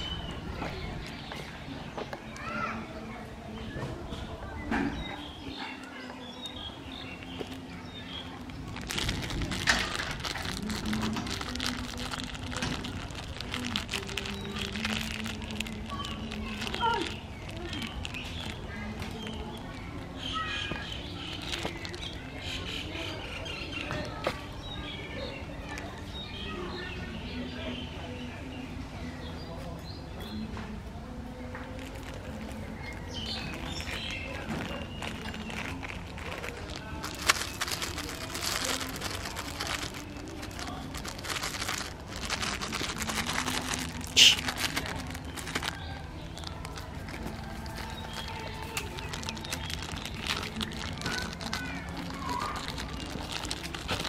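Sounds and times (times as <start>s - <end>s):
rustling and crackling clicks: 8.2s - 20.0s, 20.8s - 22.3s, 31.5s - 54.0s.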